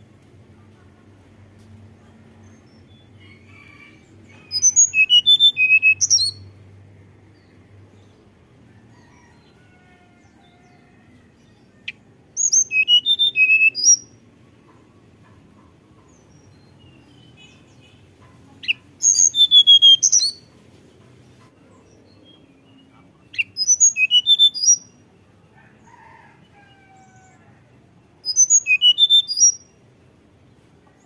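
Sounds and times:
bird singing whistled twittering notes: 4.5s - 6.4s, 12.4s - 14.1s, 18.6s - 20.4s, 23.3s - 24.9s, 28.2s - 29.7s.

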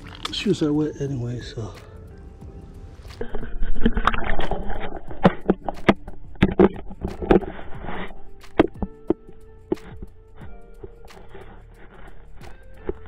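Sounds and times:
water splashing and sloshing: 0.0s - 0.4s, 3.1s - 11.6s.

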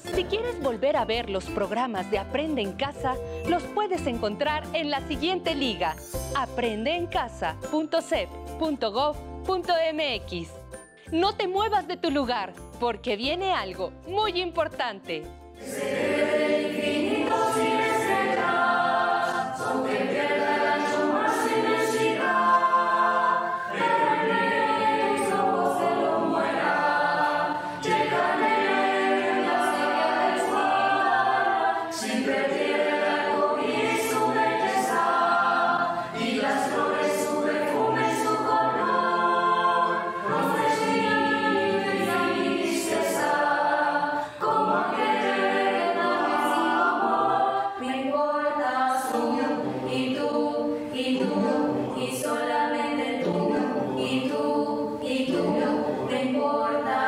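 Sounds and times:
mixed choir singing: 15.6s - 57.0s.

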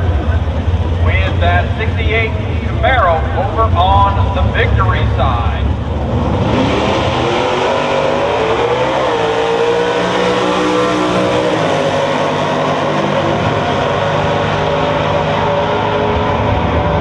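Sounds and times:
race cars accelerating: 0.0s - 17.0s.

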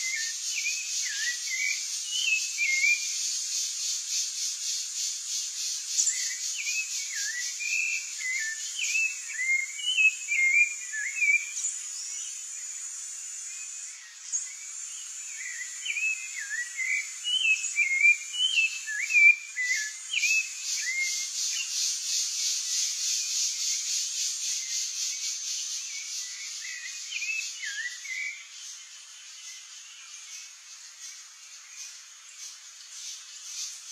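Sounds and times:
thrush singing whistled notes: 0.0s - 3.2s, 6.0s - 12.2s, 15.3s - 21.9s, 22.5s - 28.8s.

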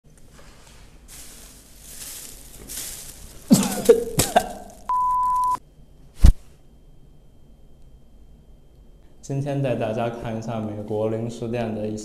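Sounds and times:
person coughing and spluttering: 3.5s - 4.9s
high beep: 4.9s - 5.6s.

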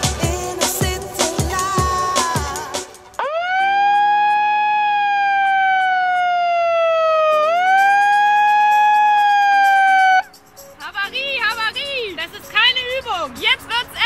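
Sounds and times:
megaphone siren wailing: 3.2s - 10.3s.

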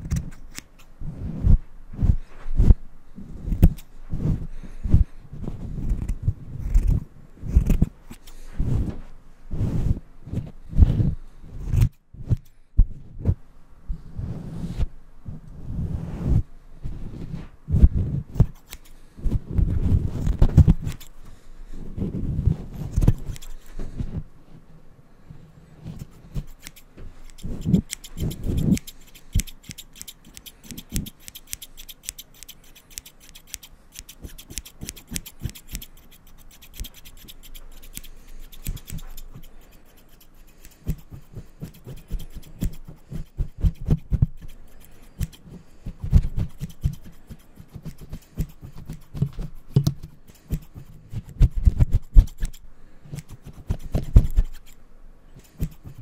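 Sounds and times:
scissors snipping: 0.0s - 0.9s, 3.5s - 3.9s, 5.8s - 8.4s, 18.3s - 19.0s, 20.1s - 21.2s, 22.8s - 23.8s, 25.9s - 54.8s, 55.4s - 56.0s
microphone handling scratches: 0.0s - 13.4s, 14.2s - 21.2s, 21.8s - 24.4s.

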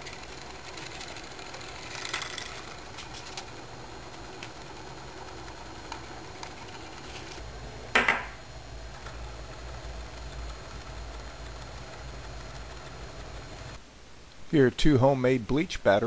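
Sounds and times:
wire ticking and rattling: 0.0s - 7.4s
small electric motor running: 0.0s - 7.9s.

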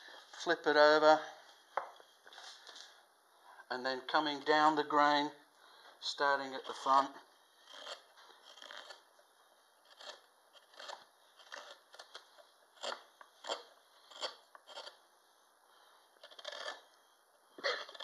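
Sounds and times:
gouge scraping cuts in wood: 7.6s - 9.1s, 9.8s - 15.0s, 16.2s - 16.9s.

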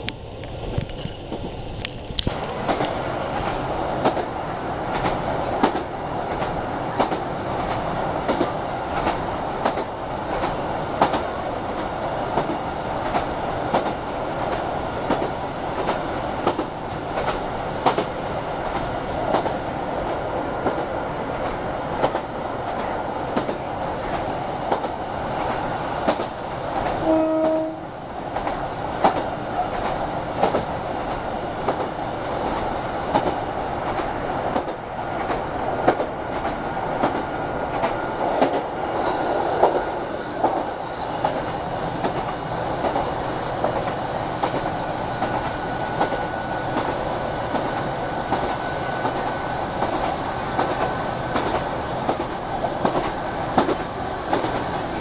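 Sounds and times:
train rumbling: 0.0s - 55.0s
train horn blast: 27.0s - 28.0s.

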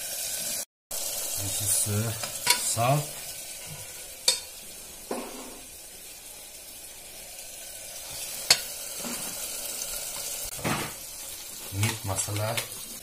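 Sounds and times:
vegetables sizzling in oil: 0.0s - 13.0s
metal spatula scraping pot: 3.6s - 4.5s
spatula clinking against pot: 4.2s - 4.5s.

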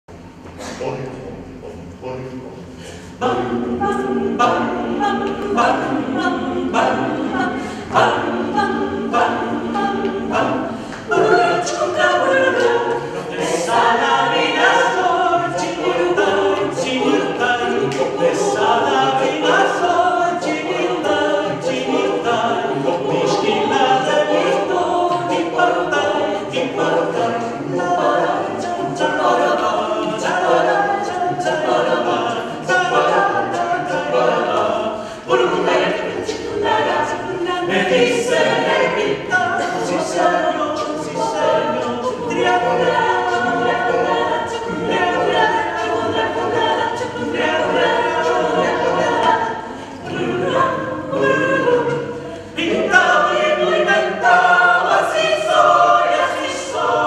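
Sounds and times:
mixed choir singing a cappella: 0.0s - 57.0s.

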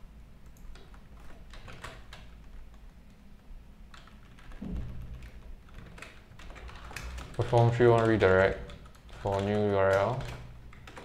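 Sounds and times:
typing on computer keyboard: 0.5s - 3.2s, 3.9s - 11.0s
low thump: 4.6s - 5.2s.

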